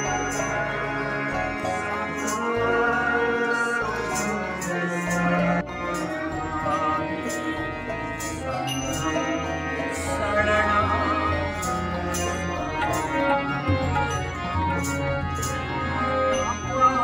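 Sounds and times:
song with percussion beat: 4.0 - 16.8.

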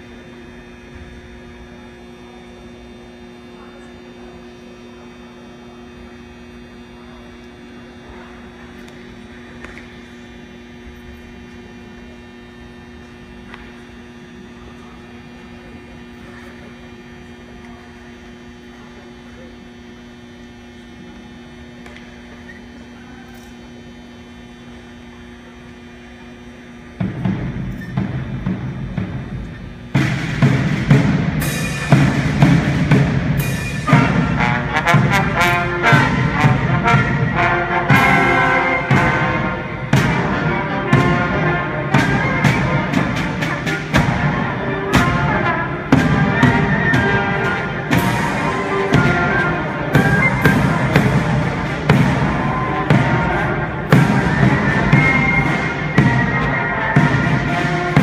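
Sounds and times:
steady electrical hum: 0.0 - 58.0
marching band playing: 27.0 - 58.0.

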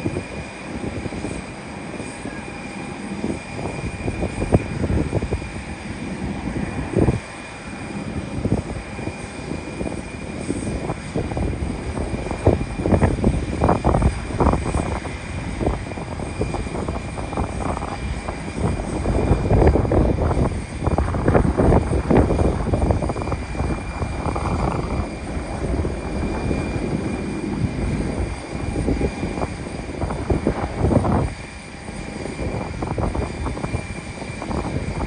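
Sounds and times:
jet engines whining: 0.0 - 35.0
low rumble: 10.3 - 31.3.

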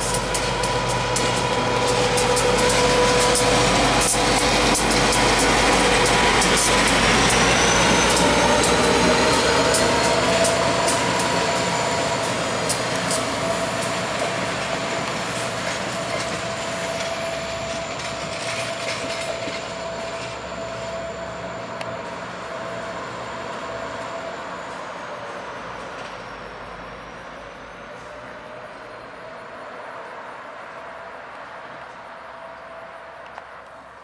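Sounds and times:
train wheels clicking over rails: 0.0 - 20.5
diesel locomotive engine: 0.0 - 34.0.

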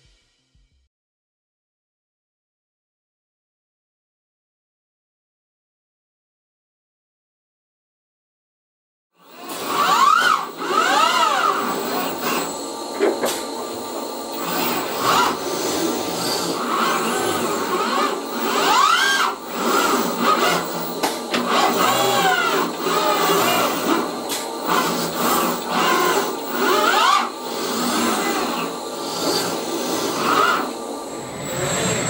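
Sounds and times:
robot arm servo whine: 9.2 - 32.0.

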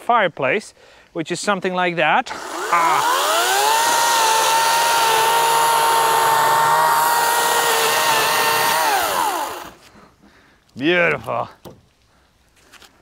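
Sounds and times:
chainsaw motor whine: 2.3 - 9.8.

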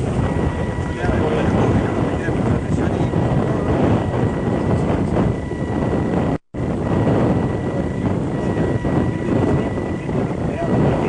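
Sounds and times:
wind buffeting microphone: 0.0 - 11.0
thin steady high tone: 7.3 - 11.0.

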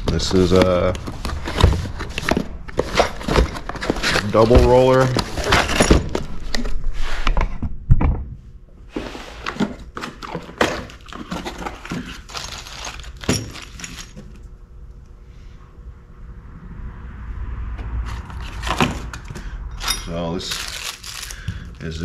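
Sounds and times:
packaging rustling: 0.0 - 6.8, 9.5 - 14.4, 20.2 - 22.0
metal parts knocking and clattering: 1.5 - 6.7, 10.2 - 14.4.

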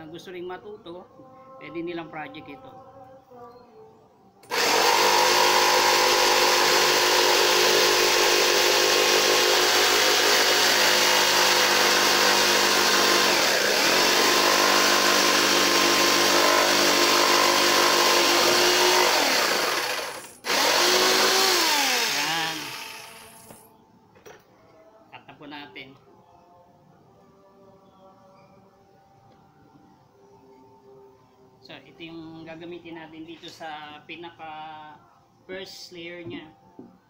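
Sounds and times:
electric jigsaw cutting wood: 4.4 - 23.7.

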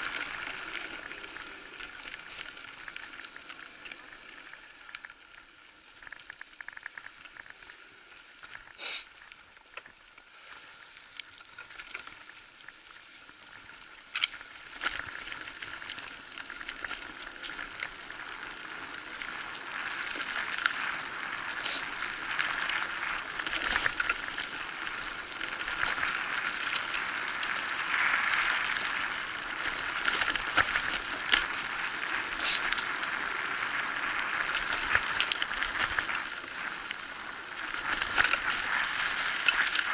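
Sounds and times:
bike rattling: 0.0 - 39.9
tyres crunching on dirt: 14.2 - 39.9.

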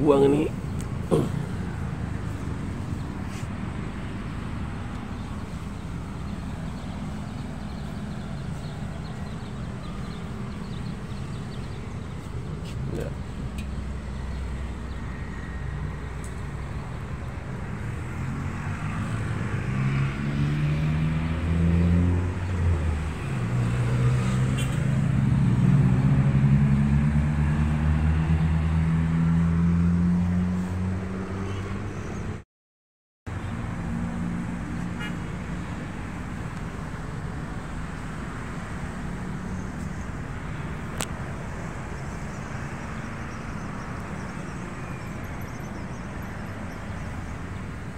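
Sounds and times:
low traffic rumble: 0.0 - 32.4, 33.3 - 47.9
passing vehicle engine: 0.0 - 32.4.

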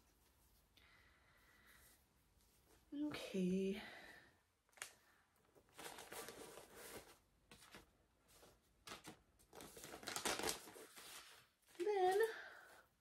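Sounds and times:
rustling and handling of materials: 0.0 - 13.0.

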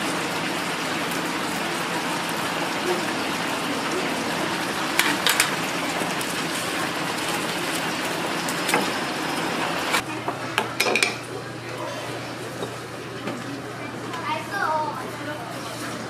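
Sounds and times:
deep-frying oil sizzling: 0.0 - 10.0.

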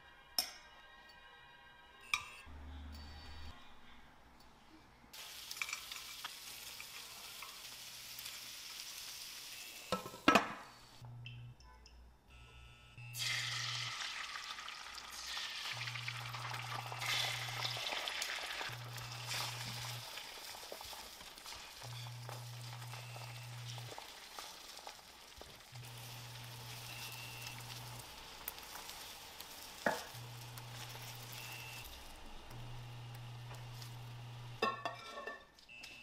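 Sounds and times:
egg sizzling in hot oil: 5.2 - 10.2, 13.2 - 34.7.

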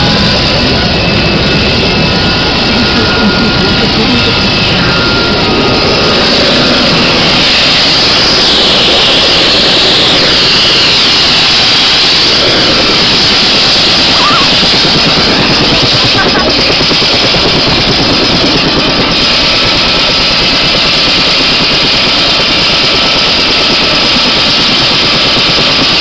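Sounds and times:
helicopter turbine whine and rotor: 0.0 - 26.0.

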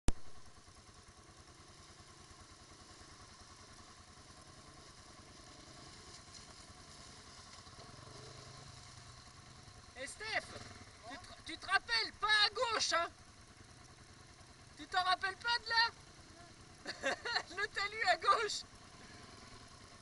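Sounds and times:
quad bike engine idling: 0.1 - 20.0.

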